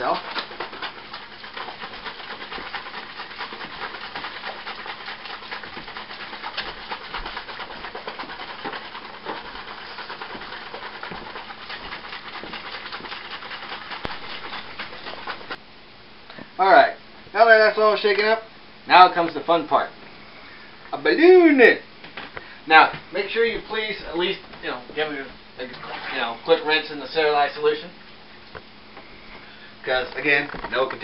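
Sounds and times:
liquid sloshing in shaken jug: 0.0s - 15.6s, 25.6s - 26.6s.

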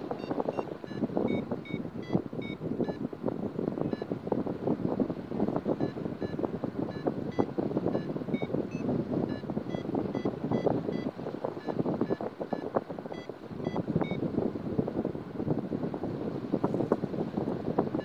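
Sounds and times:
variometer beeping: 0.0s - 3.1s, 3.8s - 4.2s, 5.6s - 14.3s
wind buffeting microphone: 0.0s - 18.0s.

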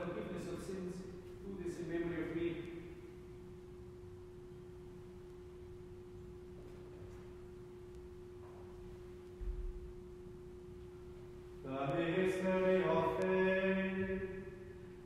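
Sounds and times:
steady pure tone: 0.0s - 15.0s.

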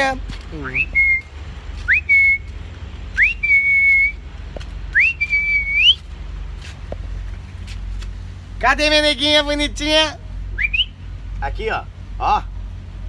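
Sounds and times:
man whistling for a dog: 0.7s - 2.5s, 3.2s - 4.2s, 5.0s - 6.0s, 10.6s - 11.0s.

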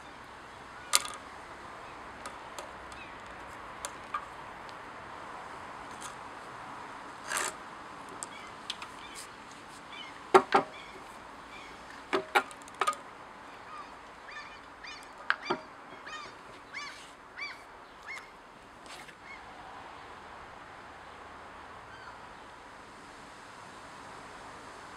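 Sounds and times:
bird calling: 9.9s - 12.1s, 13.4s - 18.4s.

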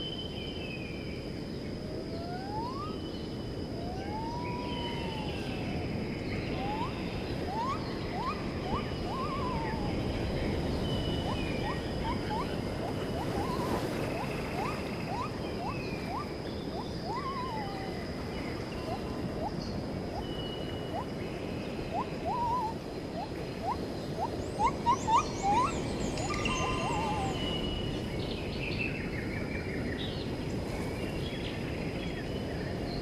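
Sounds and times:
birds calling: 3.9s - 28.1s.

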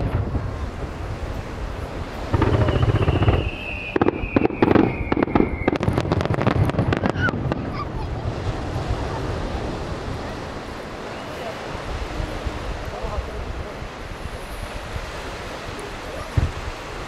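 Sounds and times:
firework bangs and crackles: 0.0s - 17.0s
falling firework whistle: 2.3s - 7.4s
low firework boom: 2.3s - 8.6s.

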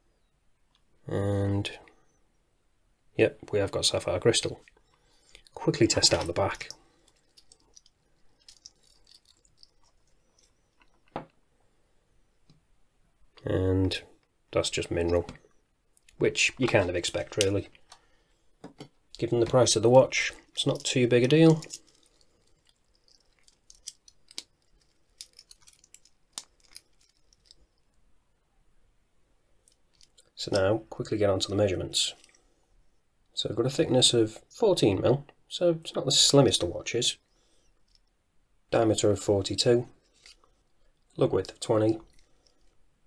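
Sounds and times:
watch bracelet clicks and rattles: 6.1s - 11.0s, 20.8s - 27.9s.

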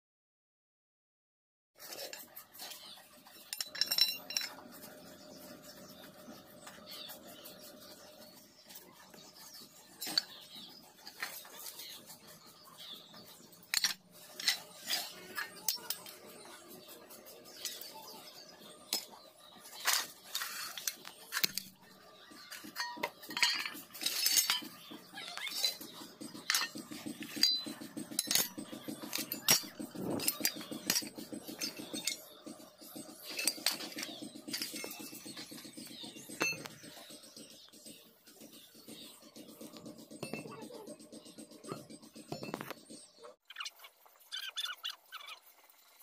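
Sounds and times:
scrap metal clinking and clanking: 1.8s - 7.3s, 9.0s - 37.1s.

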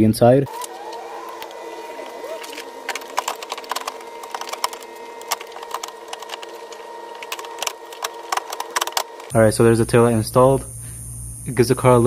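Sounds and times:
steady hum: 0.0s - 12.0s
tools and plastic trim clicking: 0.5s - 9.3s.

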